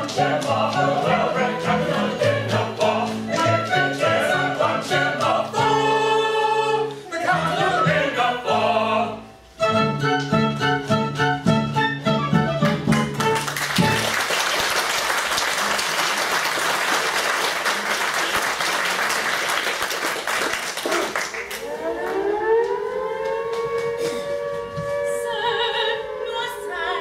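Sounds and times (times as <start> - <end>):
audience applauding: 12.6 - 22.2
sustained rising tone: 21.6 - 27.0.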